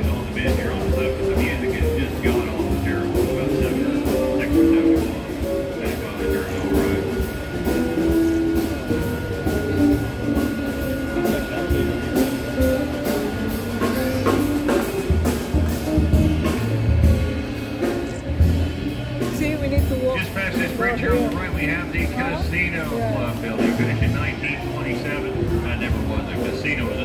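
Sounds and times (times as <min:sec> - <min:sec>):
drum kit beat on cymbals: 0:00.0 - 0:27.0.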